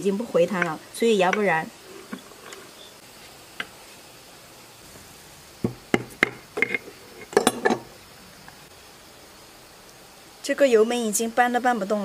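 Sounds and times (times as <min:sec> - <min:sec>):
tool knocking on metal housing: 0:05.6 - 0:06.8.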